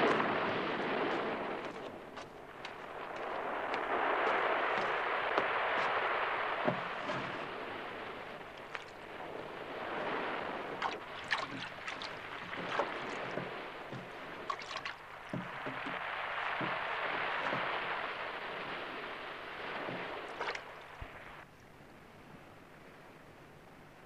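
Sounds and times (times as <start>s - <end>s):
waves washing against rocks: 0.0s - 21.4s
wooden boat knocking: 6.6s - 7.6s, 10.8s - 18.2s, 19.7s - 21.2s.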